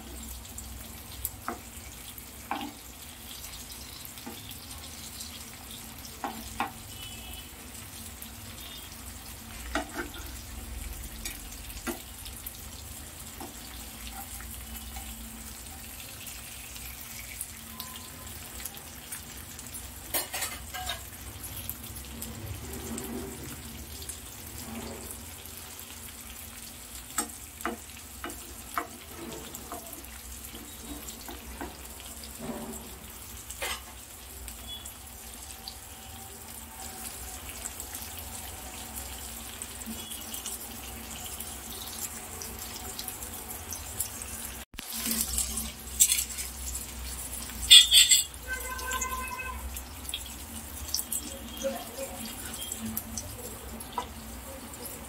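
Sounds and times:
fish sizzling in oil: 0:00.0 - 0:55.0
spatula scraping and clinking pan: 0:09.5 - 0:10.5, 0:20.1 - 0:21.2, 0:27.2 - 0:34.0, 0:44.9 - 0:49.5.

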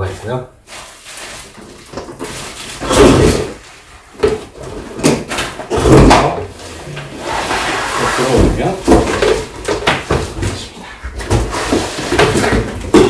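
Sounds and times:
bicycle scraping against cardboard: 0:06.5 - 0:09.5, 0:11.3 - 0:12.8.

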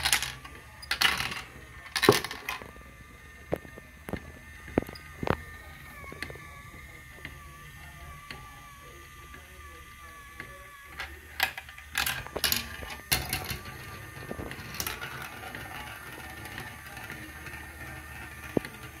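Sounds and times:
marble clacking down plastic track: 0:00.0 - 0:02.7, 0:10.4 - 0:19.0
marble rolling in plastic bowl: 0:00.0 - 0:02.8, 0:11.0 - 0:19.0.

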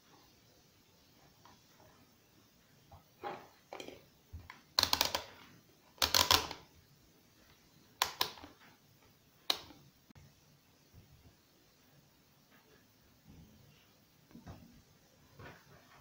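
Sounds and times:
rotary dial clicking: 0:06.0 - 0:06.6.

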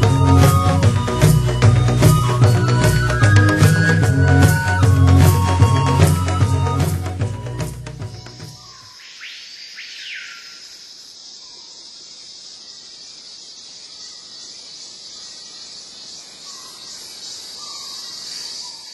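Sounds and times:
insects buzzing: 0:00.0 - 0:18.9
bird calls: 0:08.0 - 0:11.8, 0:12.6 - 0:18.9.

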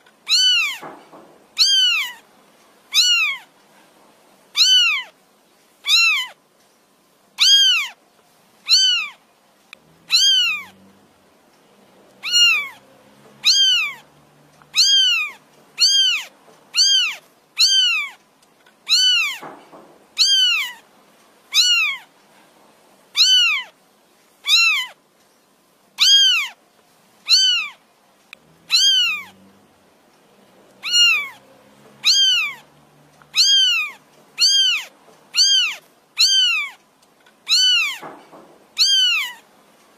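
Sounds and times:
kitten mewing: 0:00.3 - 0:00.9, 0:01.6 - 0:02.2, 0:02.9 - 0:03.5, 0:04.6 - 0:05.2, 0:05.8 - 0:06.4, 0:07.4 - 0:08.0, 0:08.7 - 0:09.2, 0:09.9 - 0:10.8, 0:12.2 - 0:12.8, 0:13.4 - 0:18.2, 0:18.9 - 0:19.5, 0:20.2 - 0:20.8, 0:21.5 - 0:22.1, 0:23.2 - 0:23.8, 0:24.4 - 0:25.0, 0:26.0 - 0:26.6, 0:27.3 - 0:27.8, 0:28.5 - 0:29.4, 0:30.8 - 0:31.4, 0:32.0 - 0:36.8, 0:37.4 - 0:38.1, 0:38.8 - 0:39.4.

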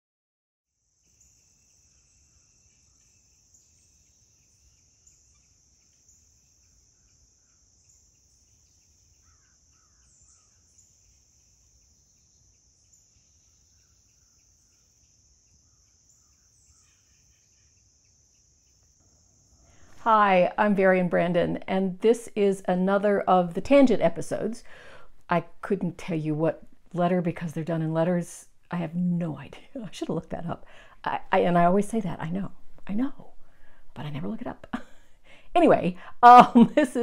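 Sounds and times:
insect chorus drone: 0:00.7 - 0:20.0
faint bird calls: 0:01.2 - 0:18.9.

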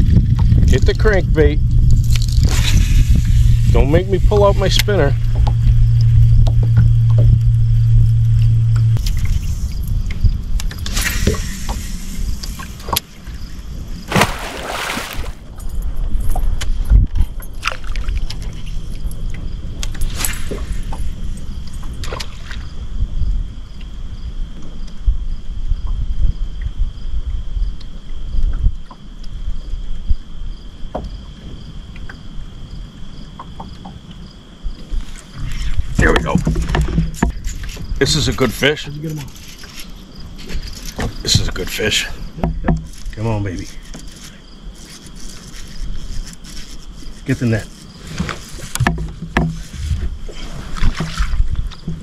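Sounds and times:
water noise: 0:00.0 - 0:23.2
low steady rumble: 0:00.0 - 0:27.8
wind buffeting microphone: 0:00.0 - 0:33.2, 0:33.9 - 0:39.1
insects trilling: 0:00.0 - 0:52.0
loud splashing whoosh: 0:14.1 - 0:15.4
knocks and clatter: 0:36.1 - 0:37.7.

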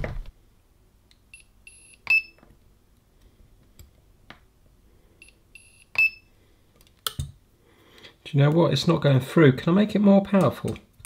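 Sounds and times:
short high beeps: 0:05.2 - 0:06.3.

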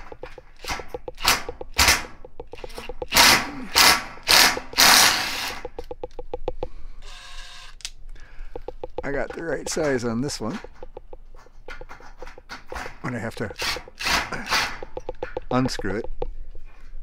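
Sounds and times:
rapid clicking: 0:00.0 - 0:06.8, 0:08.5 - 0:16.4
cordless drill bursts: 0:03.1 - 0:05.7, 0:13.6 - 0:14.8.

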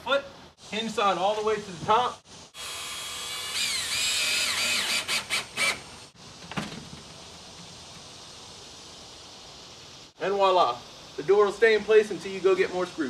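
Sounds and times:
cordless screw gun whining: 0:02.6 - 0:05.9.

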